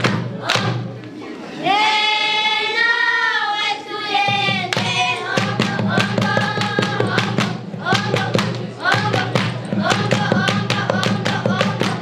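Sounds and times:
hand clapping: 0.0s - 0.8s
children singing: 0.0s - 12.0s.

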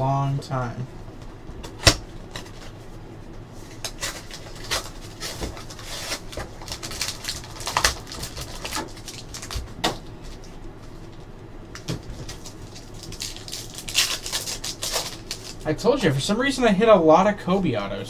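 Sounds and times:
wrapper crackling and tearing: 3.8s - 9.8s, 12.2s - 15.7s.

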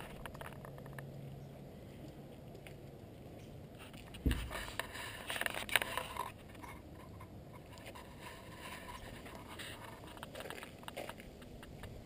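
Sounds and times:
rustling and scraping: 0.0s - 12.0s
camera handling thump: 4.2s - 4.5s.

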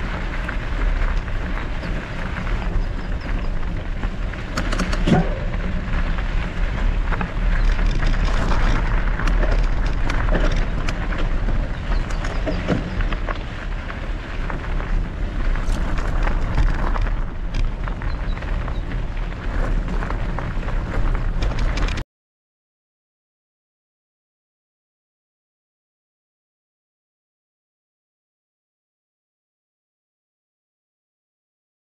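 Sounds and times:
bike clicks and rattles: 0.0s - 22.0s
bike tyres rolling on gravel: 0.0s - 22.0s
wind on microphone: 0.0s - 22.0s.

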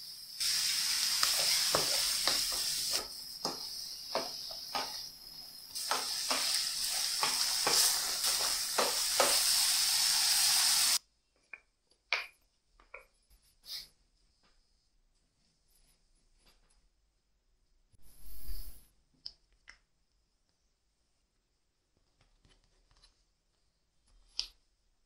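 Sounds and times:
fruit sizzling in frying pan: 0.4s - 11.0s
spatula knocking against pan: 3.4s - 5.0s
spatula scraping pan: 5.8s - 9.7s.

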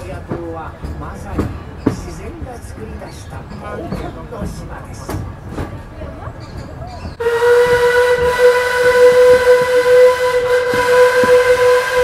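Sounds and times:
steam locomotive whistle: 7.2s - 12.0s.

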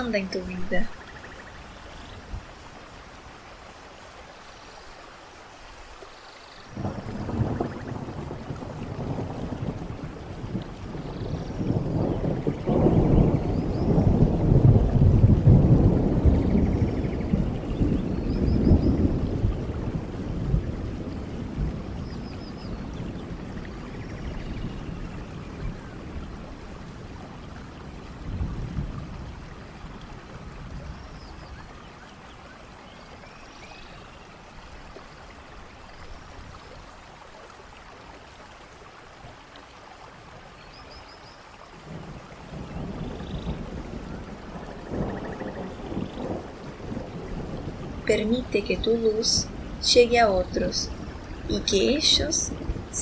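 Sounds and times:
steady rain: 0.0s - 53.0s
low thunder rumbles: 6.7s - 31.8s, 41.8s - 53.0s.

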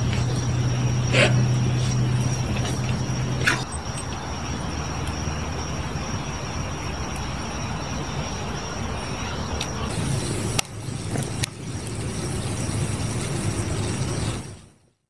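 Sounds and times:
low steady rumble: 0.0s - 4.8s, 9.9s - 14.7s
night insects trilling: 0.0s - 15.0s.

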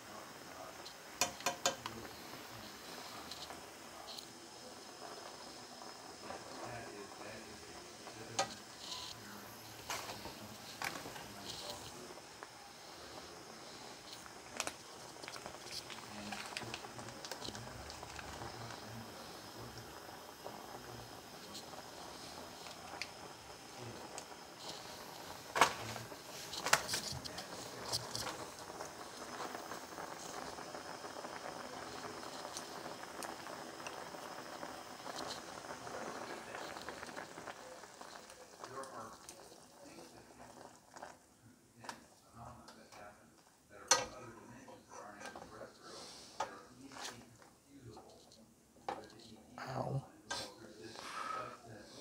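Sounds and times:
noodle broth simmering: 0.0s - 52.0s
chopstick clicking on pot: 1.2s - 1.9s.

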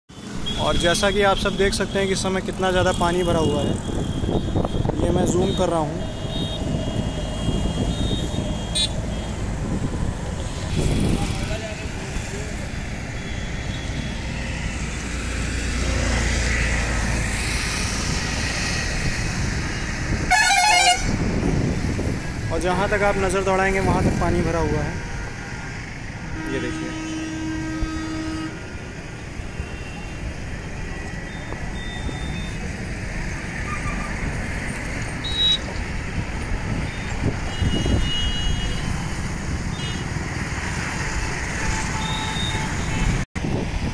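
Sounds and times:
road traffic rumble and hiss: 0.1s - 43.9s
short high-pitched beeps: 31.3s - 32.6s.

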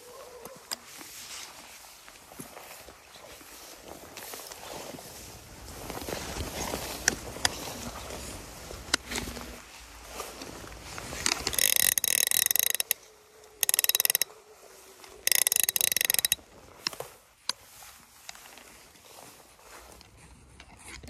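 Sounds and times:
fishing reel ratchet clicking: 11.2s - 14.3s, 15.1s - 16.4s.

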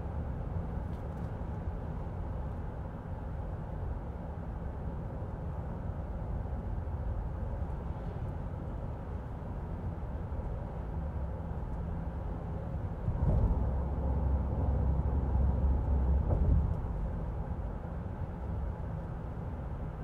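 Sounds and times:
tyre and road noise rumble: 12.2s - 18.9s.

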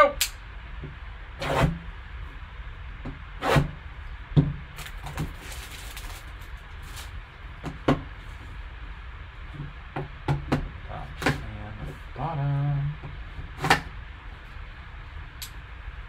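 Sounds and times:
plastic wrap rustling: 4.8s - 7.2s.

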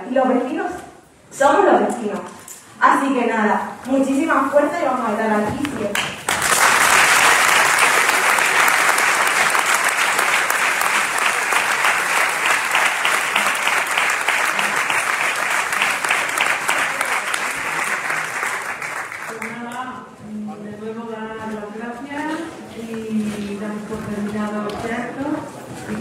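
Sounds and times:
audience applauding: 5.9s - 19.6s.

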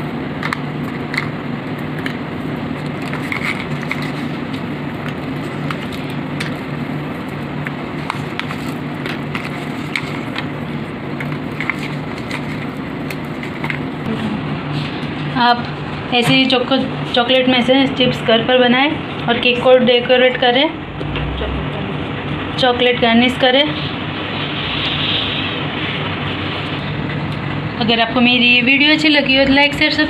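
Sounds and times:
low hum and hiss: 0.0s - 30.0s
foil crinkling: 2.8s - 7.3s, 8.0s - 13.9s.

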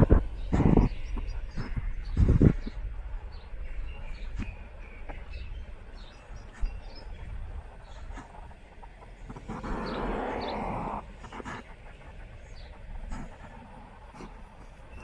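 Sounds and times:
faint bird chirps: 0.1s - 15.0s
rush of noise: 7.0s - 15.0s.

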